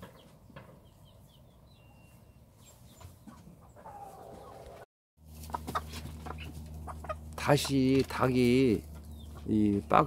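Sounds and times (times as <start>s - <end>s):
hen clucking: 3.0s - 10.0s.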